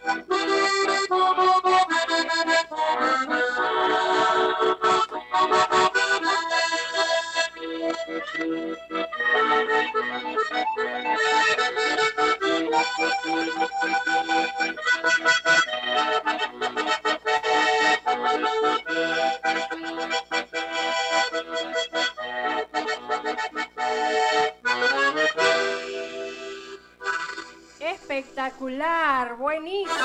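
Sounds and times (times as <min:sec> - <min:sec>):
accordion playing folk tune: 0:00.0 - 0:28.8, 0:29.8 - 0:30.0.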